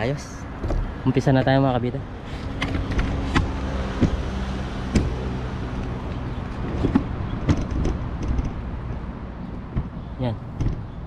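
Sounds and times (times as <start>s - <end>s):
short knocks and clicks: 6.1s - 8.6s.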